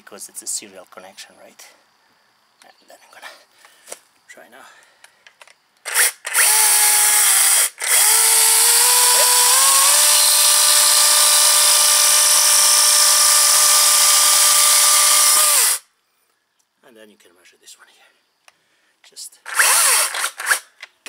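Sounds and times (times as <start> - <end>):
cordless chainsaw motor whine: 5.9 - 15.9, 19.5 - 20.6.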